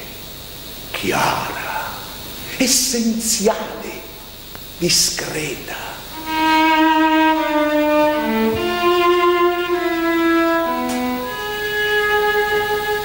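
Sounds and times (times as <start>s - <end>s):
solo cello bowed melody: 6.1s - 13.0s.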